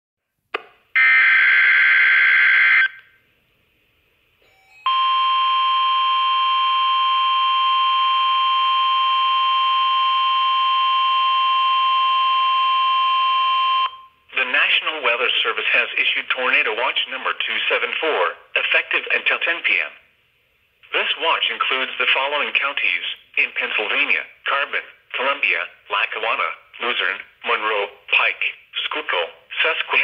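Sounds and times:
shrill warning alarm tone: 0:01.0 - 0:03.0, 0:04.4 - 0:14.1.

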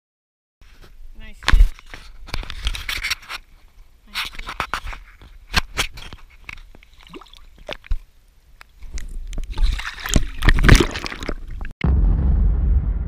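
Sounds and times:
water sloshing and splashing: 0:04.1 - 0:11.8.

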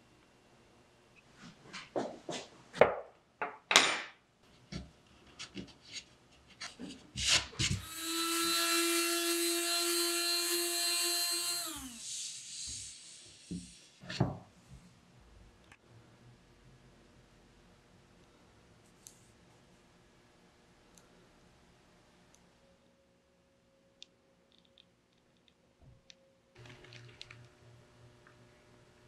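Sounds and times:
electric sander whining: 0:07.8 - 0:13.5.

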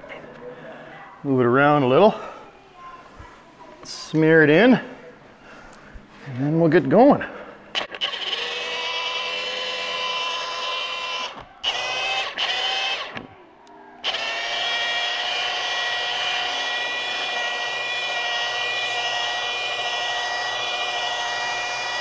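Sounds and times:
rotary polisher motor whining: 0:07.7 - 0:13.4, 0:14.0 - 0:22.0.

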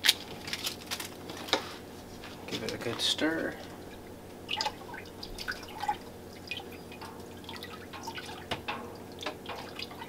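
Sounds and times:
spoon stirring liquid in pot: 0:02.8 - 0:10.0
small splashes and sloshes: 0:03.7 - 0:10.0.

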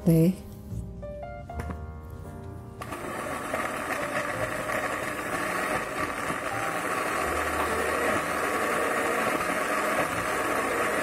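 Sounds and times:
soft background music: 0:00.0 - 0:11.0
blender motor grinding: 0:02.8 - 0:11.0.

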